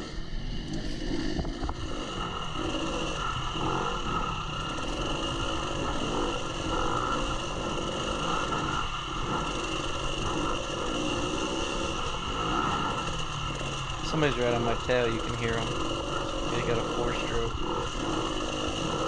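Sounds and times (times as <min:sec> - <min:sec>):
dirt bike engine revving: 0:01.9 - 0:19.0.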